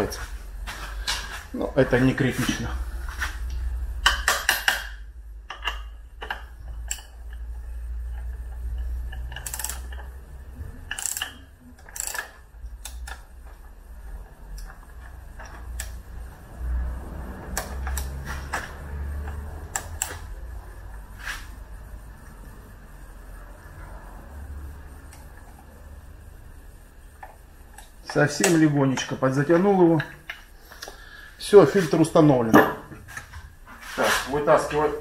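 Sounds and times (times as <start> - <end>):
steady low hum: 0.0 - 35.0
ratchet wrench clicking: 5.5 - 13.3, 14.5 - 16.4, 17.4 - 20.4.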